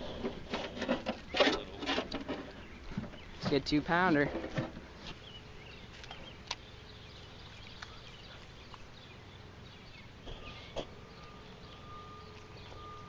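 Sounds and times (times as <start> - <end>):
faint steady whine: 0.0 - 13.0
low steady hum: 0.0 - 13.0
faint bird chirps: 5.1 - 13.0.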